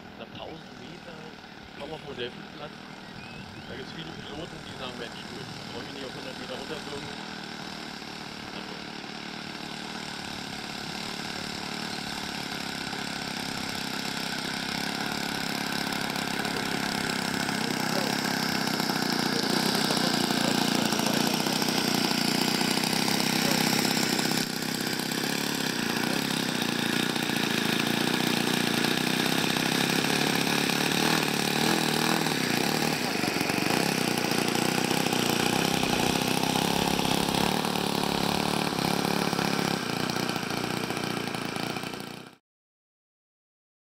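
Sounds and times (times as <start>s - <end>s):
model plane engine running: 0.0s - 42.4s.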